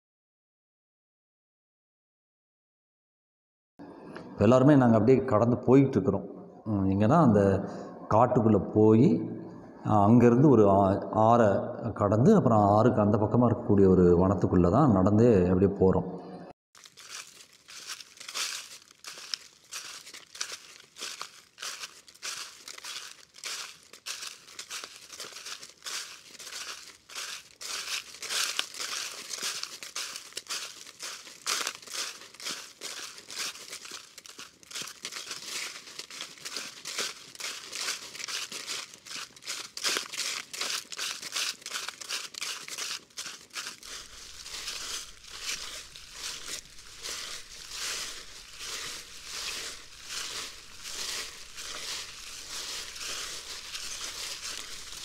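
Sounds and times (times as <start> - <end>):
footsteps crunching through undergrowth: 16.8 - 55.0.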